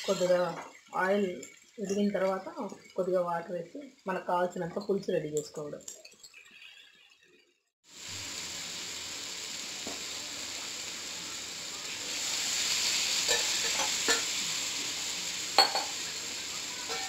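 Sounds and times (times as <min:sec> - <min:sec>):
vegetables sizzling in hot oil: 0:00.0 - 0:07.1, 0:07.8 - 0:17.0.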